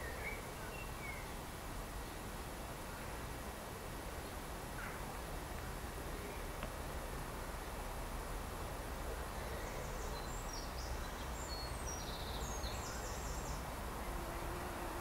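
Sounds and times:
songbird chirping: 0.0 - 3.2, 9.0 - 15.0.

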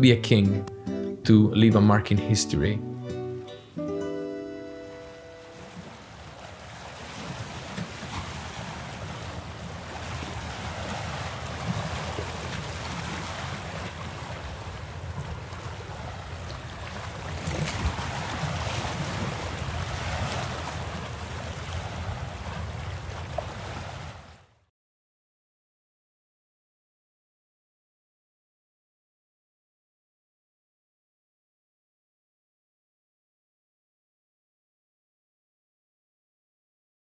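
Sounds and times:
river water flowing: 2.8 - 24.6.

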